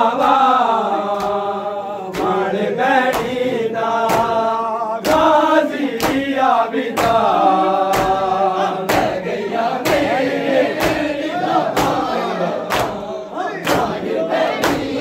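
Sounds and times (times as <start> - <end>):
men chanting in unison: 0.0 - 15.0
hands slapping bare chests: 1.1 - 1.4, 2.1 - 3.4, 4.0 - 9.2, 9.8 - 15.0.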